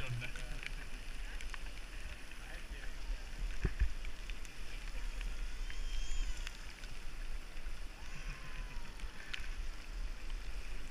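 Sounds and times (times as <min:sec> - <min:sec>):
tyres hissing on wet asphalt: 0:00.0 - 0:10.9
faint clicks: 0:03.4 - 0:10.9.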